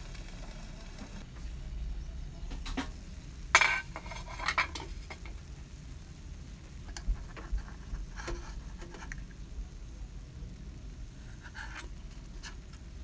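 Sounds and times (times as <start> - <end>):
metal clatter: 3.5 - 5.3
metal skewer scraping metal mold: 3.6 - 5.0.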